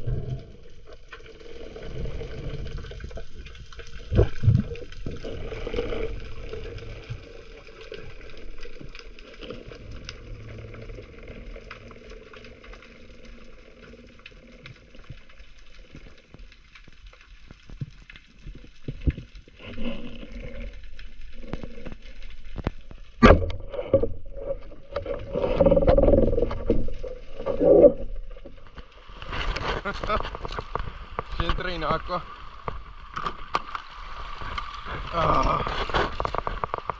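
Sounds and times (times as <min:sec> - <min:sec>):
faint underwater drone: 0:00.0 - 0:31.3
underwater clicks and knocks: 0:14.5 - 0:32.0, 0:32.6 - 0:34.7, 0:35.6 - 0:36.9.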